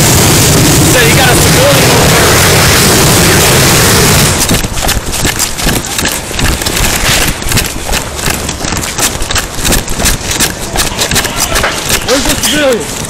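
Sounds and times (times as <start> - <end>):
clothing rubbing on microphone: 4.4 - 13.0.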